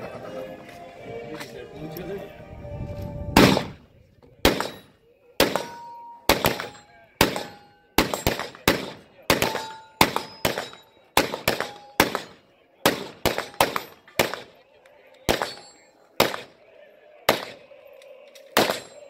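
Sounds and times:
rapid handgun shots: 3.4 - 3.8, 4.4 - 14.6, 15.3 - 16.6, 17.2 - 17.7, 18.6 - 19.0
steel targets ringing: 4.6 - 8.6, 9.4 - 12.4, 13.2 - 14.2, 15.3 - 16.6, 18.6 - 19.0.

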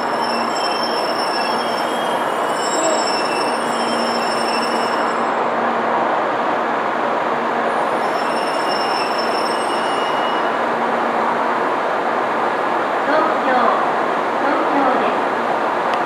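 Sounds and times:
high squealing tones: 0.0 - 5.3, 8.0 - 10.5.

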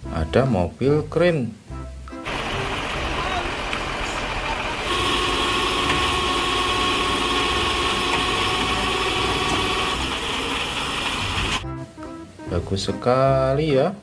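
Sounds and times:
thin steady whine: 2.3 - 11.6
truck engine running: 2.3 - 11.6.

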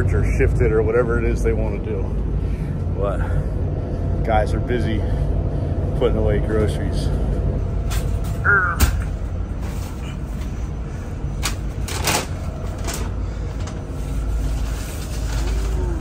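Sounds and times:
steady low hum: 0.0 - 16.0
plastic bags rustling: 11.6 - 16.0.

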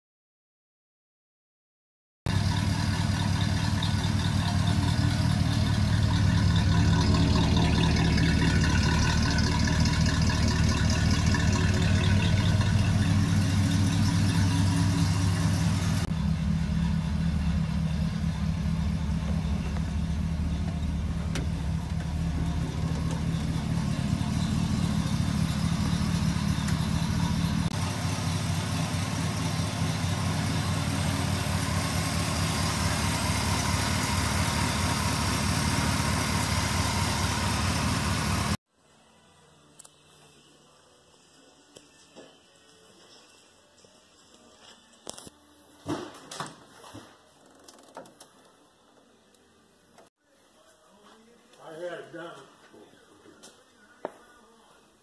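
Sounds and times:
pickup engine idling: 2.3 - 38.6.

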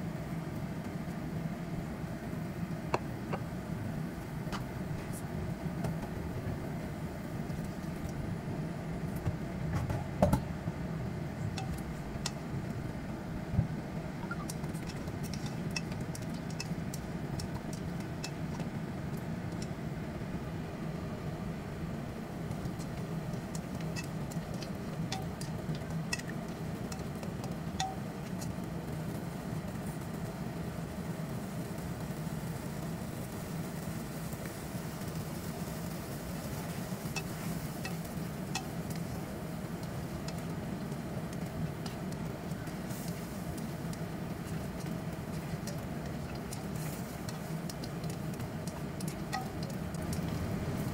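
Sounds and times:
steady low hum: 0.0 - 50.9
sauce bubbling and popping: 11.5 - 28.8, 34.4 - 50.9.

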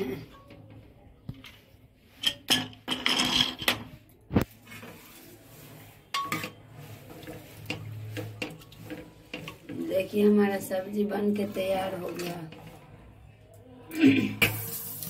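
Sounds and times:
metal ladle scraping cooker: 1.6 - 13.1.

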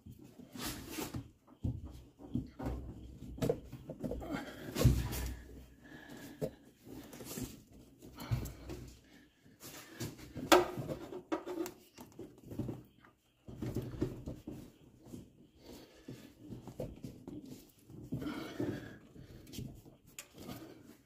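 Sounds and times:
rubber hose rubbing and clicking: 9.7 - 21.0.

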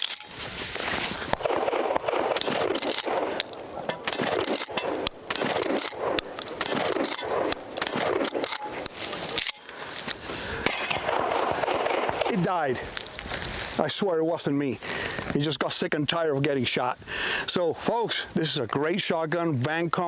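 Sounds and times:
shotgun pump racking: 0.0 - 0.4, 2.4 - 11.0
shotgun shots: 1.3 - 9.6, 10.7 - 12.6.

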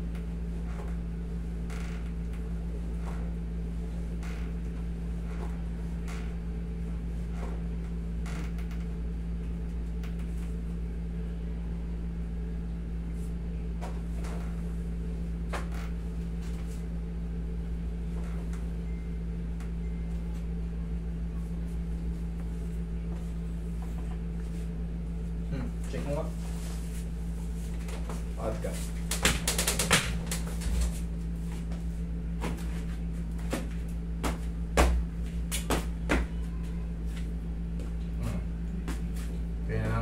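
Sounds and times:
low mechanical hum: 0.0 - 40.0
treatment table creaks: 0.1 - 3.4, 4.1 - 6.4, 7.2 - 9.0, 13.8 - 14.7, 15.5 - 16.8, 18.1 - 18.6.

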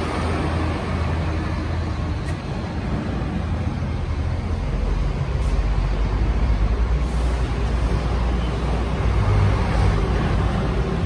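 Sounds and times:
motor vehicle rumble: 0.0 - 11.0.

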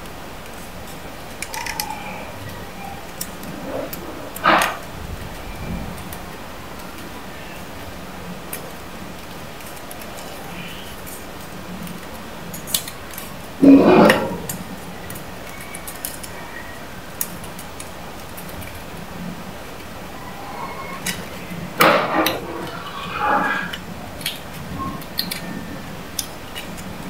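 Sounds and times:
small clicks: 0.0 - 4.8, 24.2 - 27.0.

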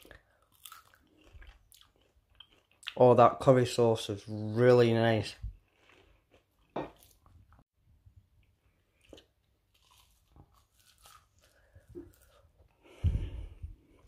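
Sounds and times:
faint crunches of chewing: 0.0 - 3.0, 5.6 - 7.4, 8.6 - 12.7.

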